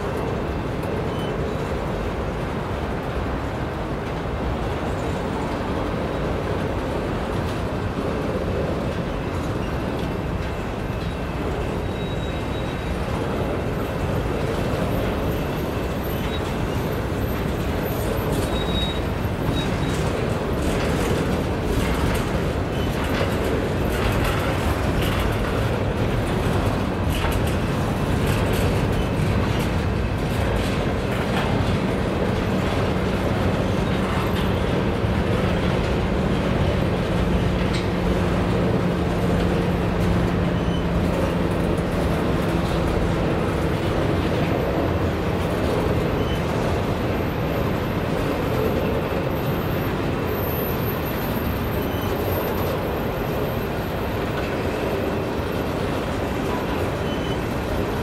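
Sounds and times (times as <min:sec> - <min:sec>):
train wheels clicking over rail joints: 0:00.0 - 0:58.0
brief wheel squeals: 0:00.9 - 0:02.0, 0:09.5 - 0:26.0, 0:39.7 - 0:42.8, 0:43.9 - 0:58.0.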